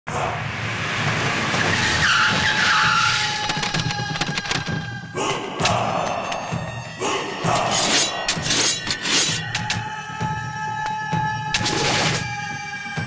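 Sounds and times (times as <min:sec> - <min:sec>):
tyres squealing on dirt: 0:01.6 - 0:04.7
sharp clicks: 0:03.4 - 0:04.8.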